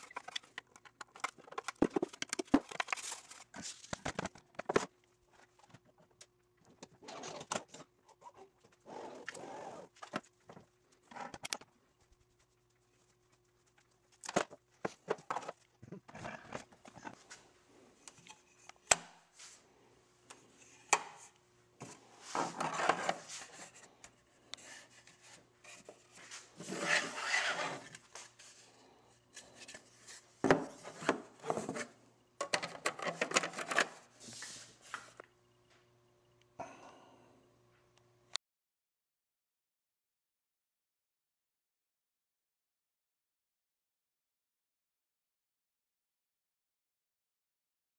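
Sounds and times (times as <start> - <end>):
plastic covers clicking and knocking: 0.0 - 5.0, 32.4 - 34.0
faint steady hum: 0.0 - 38.4
plastic scraping against frame: 21.8 - 23.9, 24.6 - 28.0.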